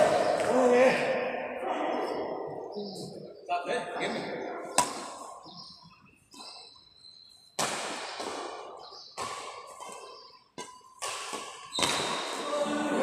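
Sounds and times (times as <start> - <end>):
rackets hitting shuttlecock: 4.6 - 5.5, 7.5 - 12.6.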